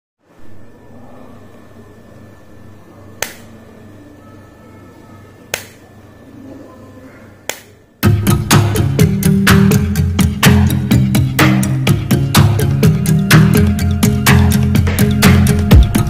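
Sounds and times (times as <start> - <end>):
faint hum: 0.2 - 16.0
loud guitar music: 8.0 - 16.0.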